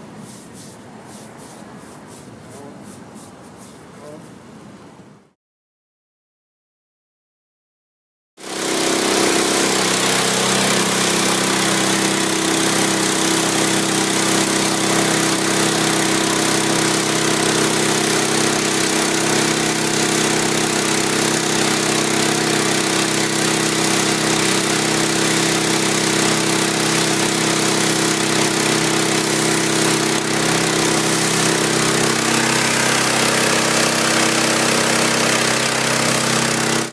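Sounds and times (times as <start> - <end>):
water jet hissing on brick: 8.5 - 36.9.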